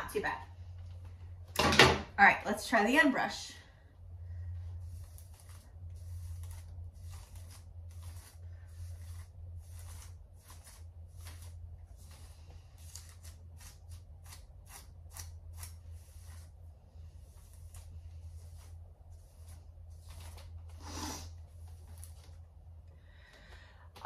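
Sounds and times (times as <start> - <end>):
low steady hum: 0.0 - 24.0
brush swishing through hair: 4.5 - 22.5.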